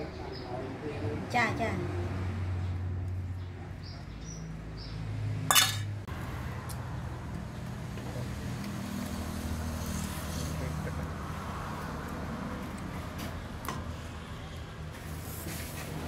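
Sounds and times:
metal spoon clinking bowl: 5.5s - 5.9s.

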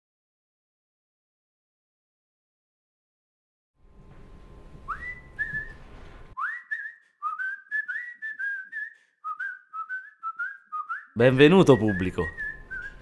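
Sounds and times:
person whistling a tune: 4.9s - 5.8s, 6.4s - 13.0s
faint room hiss: 11.2s - 13.0s.

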